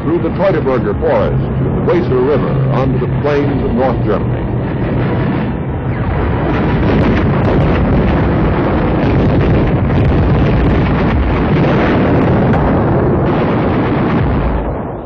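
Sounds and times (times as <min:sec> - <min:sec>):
rumble of explosions: 0:00.0 - 0:15.0.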